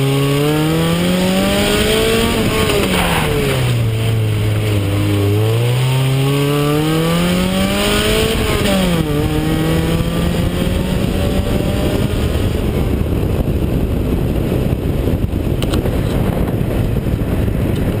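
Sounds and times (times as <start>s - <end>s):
car engine accelerating hard: 0.0s - 13.1s
wind and road noise: 0.0s - 18.0s.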